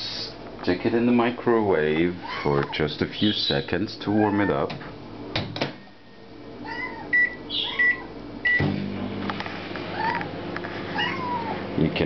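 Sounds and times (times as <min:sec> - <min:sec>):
microwave humming: 0:00.0 - 0:12.0
cat meowing: 0:02.2 - 0:02.8, 0:04.1 - 0:04.7, 0:06.6 - 0:08.2, 0:09.9 - 0:10.3, 0:10.9 - 0:11.6
microwave keypad beeping: 0:07.1 - 0:08.7.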